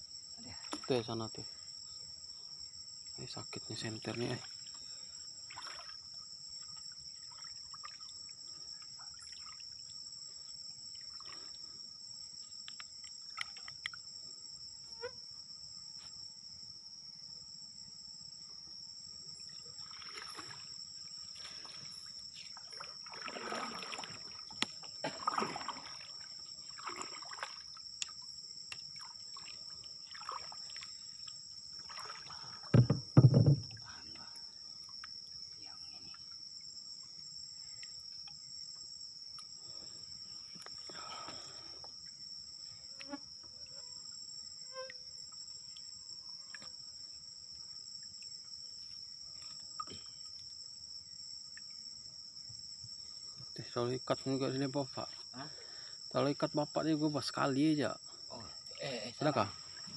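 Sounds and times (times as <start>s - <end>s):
insects chirring: 0.0s - 59.9s
water splashing and dripping: 5.5s - 6.1s, 19.7s - 20.8s, 21.4s - 33.0s
loud low thuds: 32.8s - 33.8s.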